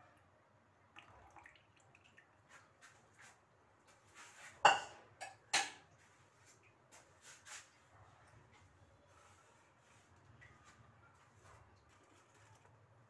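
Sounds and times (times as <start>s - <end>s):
light taps on saucepan: 4.6s - 5.9s.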